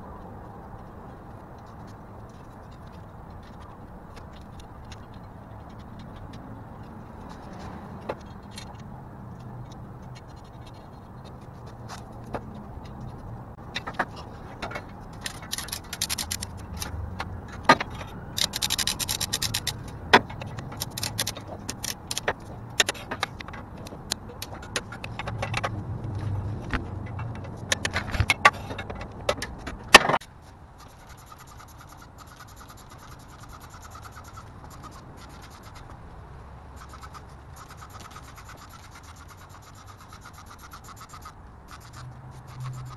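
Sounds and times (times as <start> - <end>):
sharp clicks and knocks: 1.5 - 30.3.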